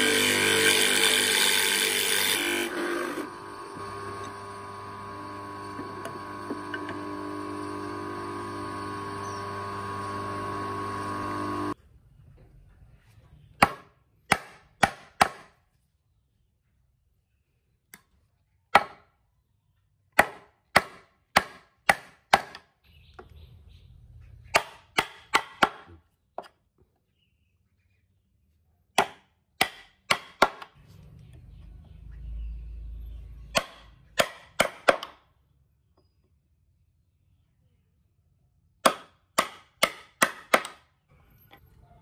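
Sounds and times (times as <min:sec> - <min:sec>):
mallet striking wood chisel: 0:13.6 - 0:15.6, 0:18.7 - 0:19.0, 0:20.2 - 0:22.7, 0:24.5 - 0:25.9, 0:29.0 - 0:30.7, 0:33.5 - 0:35.2, 0:38.8 - 0:40.8.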